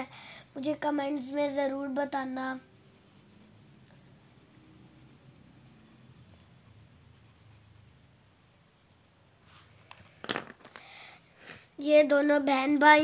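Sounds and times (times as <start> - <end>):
colored pencil scratching on paper: 0.0 - 9.8.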